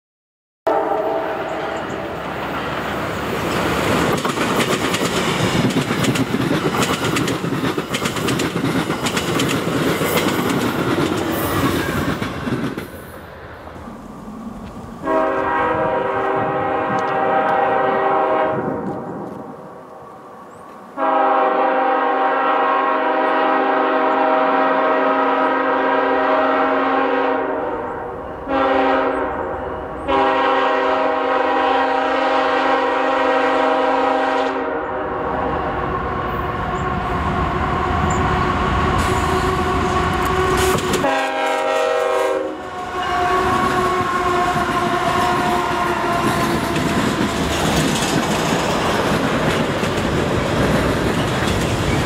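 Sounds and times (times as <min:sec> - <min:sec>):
train air horn blasts: 0:00.7 - 0:02.2, 0:15.0 - 0:19.5, 0:21.0 - 0:47.4
train wheels rushing and clicking: 0:01.8 - 0:13.2, 0:14.5 - 0:17.7, 0:18.6 - 0:20.0, 0:38.0 - 0:41.7, 0:43.4 - 0:52.0.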